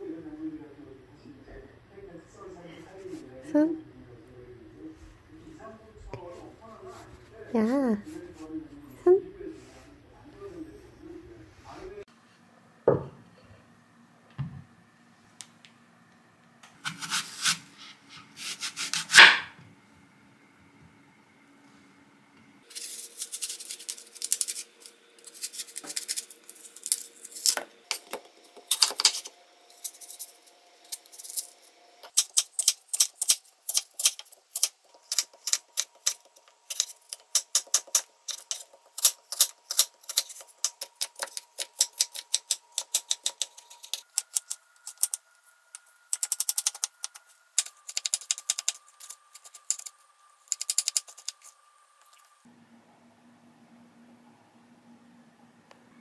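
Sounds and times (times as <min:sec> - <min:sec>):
knife cutting on wooden board: 0:16.8 - 0:17.7, 0:18.4 - 0:19.5.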